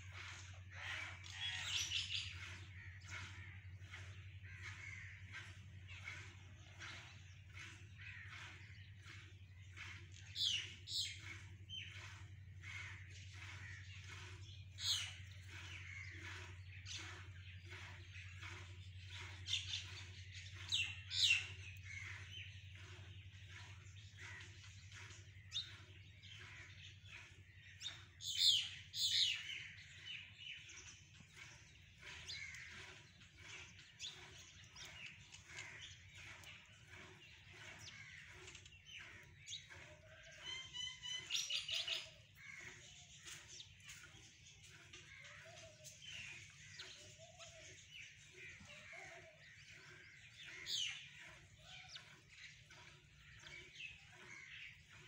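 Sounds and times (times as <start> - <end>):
birds chirping and calling: 0.0 - 55.0
loud sharp bird calls: 0.0 - 55.0.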